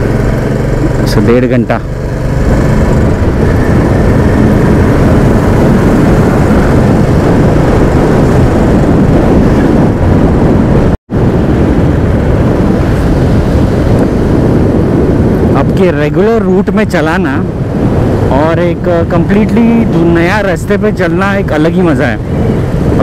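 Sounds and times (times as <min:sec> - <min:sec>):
motorcycle engine running: 0:00.0 - 0:10.8
wind rush on microphone: 0:00.0 - 0:23.0.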